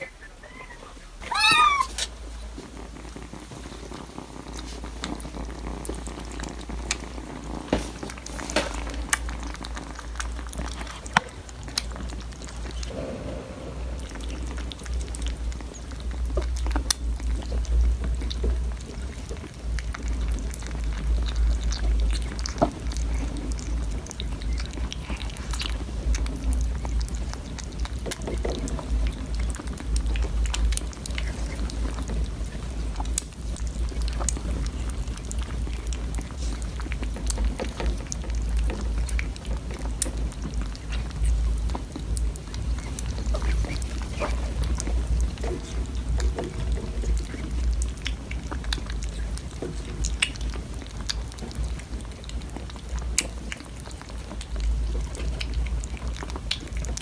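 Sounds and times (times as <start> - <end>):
kittens lapping and chewing: 0.0 - 12.9, 15.0 - 57.0
kitten meow: 0.5 - 2.1
steady low rumble: 12.8 - 21.1.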